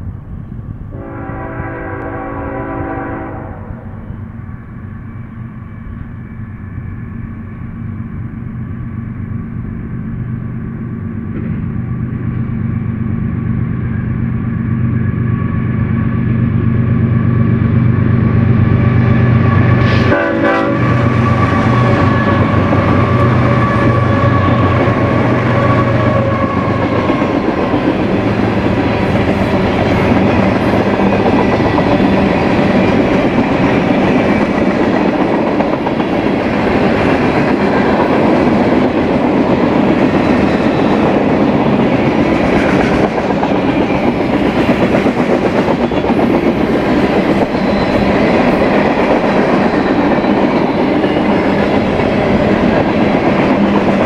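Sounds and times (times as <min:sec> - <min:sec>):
locomotive horn blast: 0:00.9 - 0:03.9, 0:19.5 - 0:27.1.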